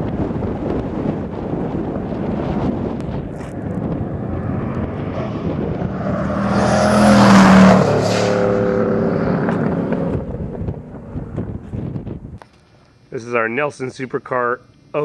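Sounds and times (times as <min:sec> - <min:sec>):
sports car driving past: 0:02.7 - 0:11.9.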